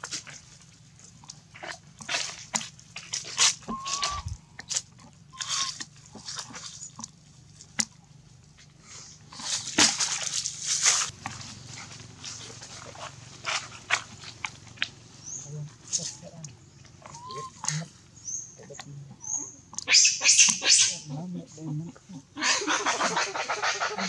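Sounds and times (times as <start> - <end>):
dry leaves crackling and rustling: 0.0 - 8.6, 9.2 - 17.6
monkey squeaks: 3.4 - 4.4, 5.3 - 5.8, 17.0 - 18.6, 19.2 - 21.1.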